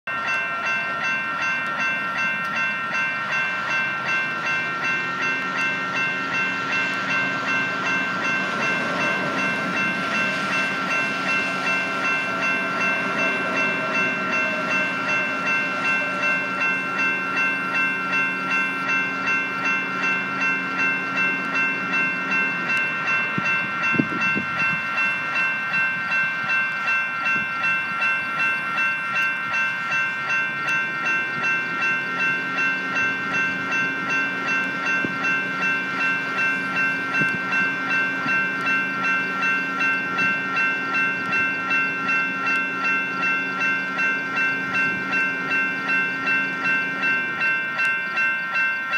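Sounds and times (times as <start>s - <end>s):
railroad crossing bell ringing: 0.0s - 48.9s.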